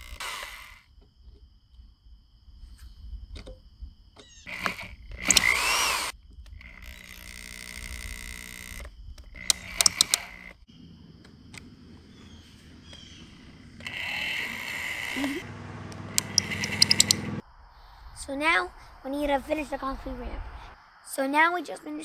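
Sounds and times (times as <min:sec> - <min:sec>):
power drill driving screws into wood: 0:00.0 - 0:00.8, 0:04.4 - 0:10.6, 0:13.8 - 0:15.4
sharp clicks: 0:04.2 - 0:10.6, 0:13.7 - 0:17.4.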